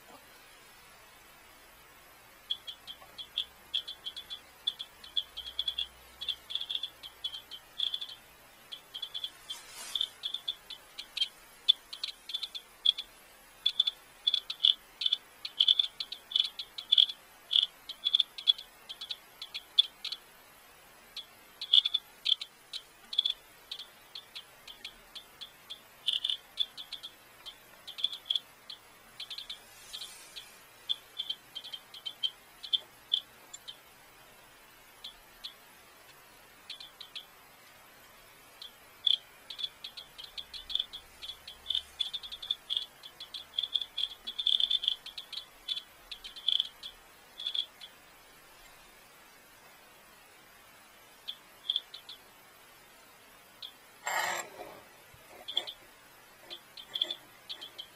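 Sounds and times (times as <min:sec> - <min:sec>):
geiger counter clicking rapidly: 0:02.5 - 0:09.3, 0:39.0 - 0:46.8.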